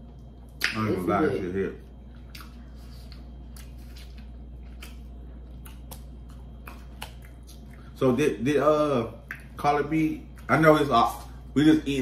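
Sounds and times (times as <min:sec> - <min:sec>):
steady low hum: 0:00.0 - 0:12.0
chewing smacks: 0:02.1 - 0:08.0, 0:09.2 - 0:09.6.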